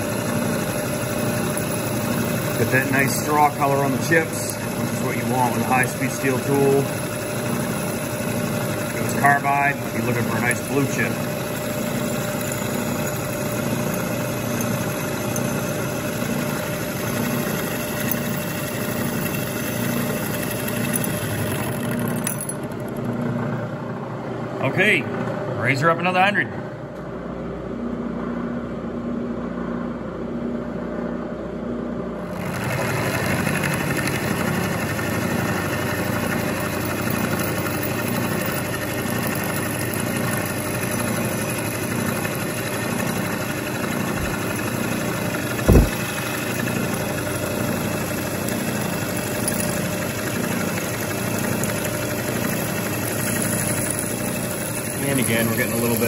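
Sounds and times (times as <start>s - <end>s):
milling machine cutting steel: 0.0s - 23.0s, 32.3s - 56.0s
sharp knock: 45.6s - 46.2s.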